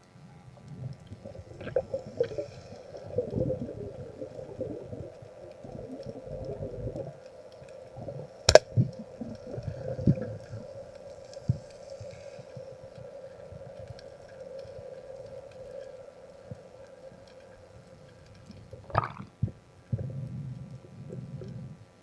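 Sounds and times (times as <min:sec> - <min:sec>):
underwater sloshing and gurgling: 0:00.1 - 0:22.0.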